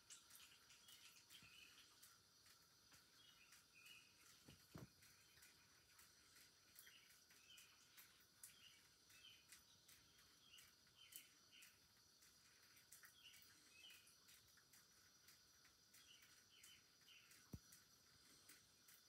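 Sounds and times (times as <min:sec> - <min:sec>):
faint high chirps: 0:00.0 - 0:19.0.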